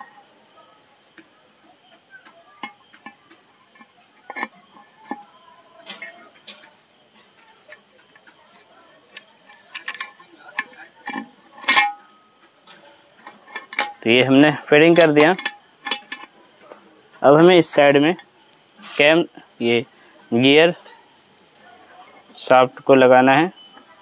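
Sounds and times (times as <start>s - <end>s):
cricket trill: 0.0s - 24.0s
metallic clicks of gears: 7.7s - 12.4s, 13.2s - 16.3s.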